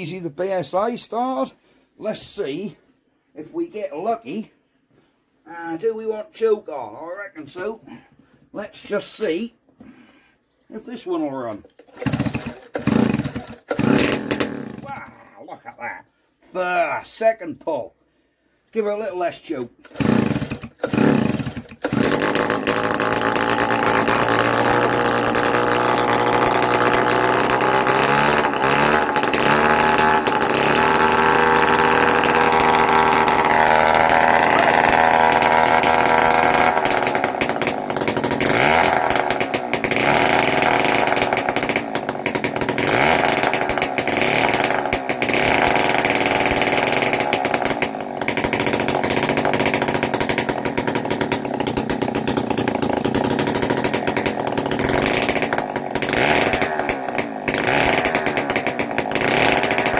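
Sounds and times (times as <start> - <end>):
two-stroke engine running: 11.6 - 15.1, 19.8 - 59.9.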